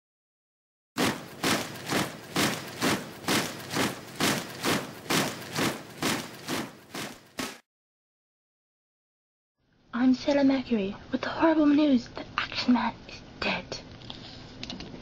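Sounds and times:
steady beat of sharp hits: 1.0 - 7.6.

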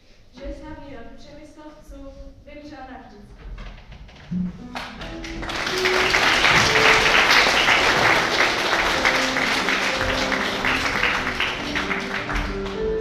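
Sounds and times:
music with held notes: 4.3 - 13.0
audience applauding: 4.7 - 13.0.

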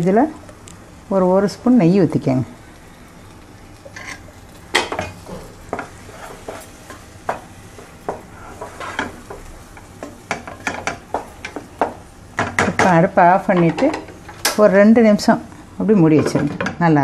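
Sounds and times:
wooden spatula scraping pan: 3.8 - 12.0.

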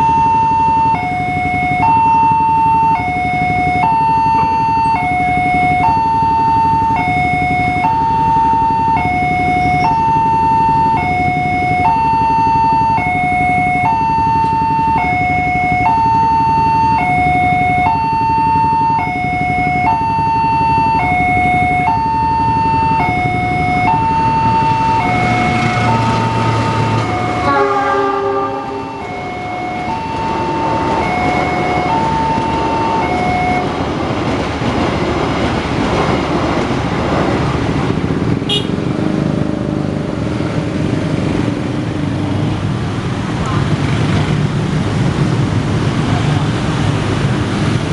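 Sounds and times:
traffic: 0.0 - 47.9
passing train rushing: 19.0 - 47.9
locomotive horn blast: 25.2 - 33.7, 38.5 - 38.9.

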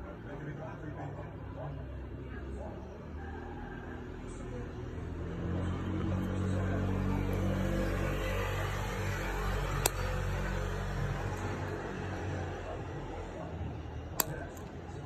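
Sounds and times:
vehicle engine hum: 0.0 - 15.0
sharp click: 14.2 - 14.7.

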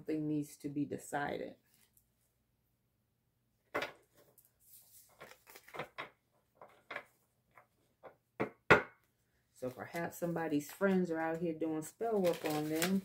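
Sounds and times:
cards being shuffled: 4.1 - 6.1, 12.1 - 13.0.

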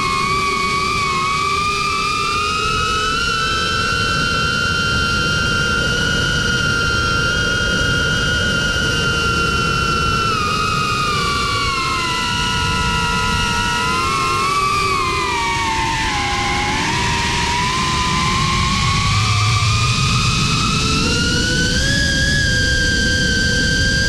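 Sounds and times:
drone motors whining: 0.0 - 24.0.

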